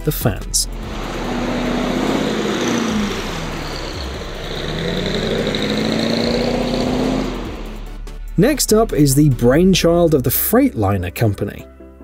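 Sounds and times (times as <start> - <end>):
truck engine revving hard: 0.2 - 8.0
tyres spinning on tarmac: 0.7 - 7.8.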